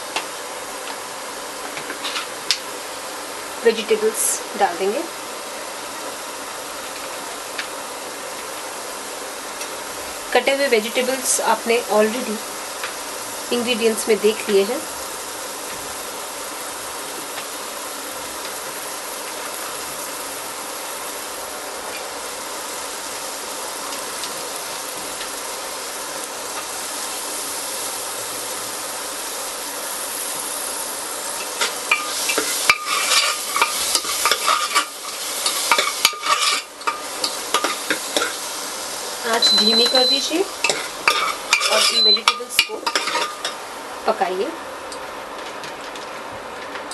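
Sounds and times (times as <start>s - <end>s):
vegetables sizzling in oil: 0.0s - 46.9s
spoon scraping pot: 35.5s - 38.4s, 40.6s - 43.5s.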